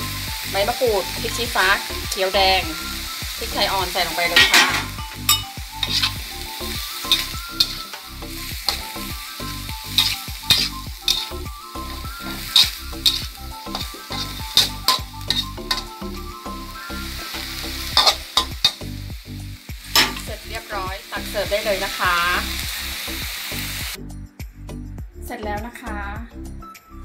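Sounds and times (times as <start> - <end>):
food sizzling: 0.0 - 24.0
metal spatula scraping a wok: 1.8 - 19.0, 19.9 - 20.4.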